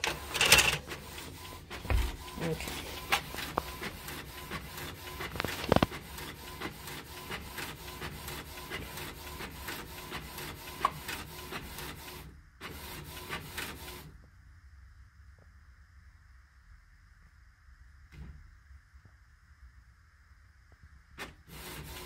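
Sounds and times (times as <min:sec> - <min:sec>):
printer clack: 0:00.0 - 0:01.0.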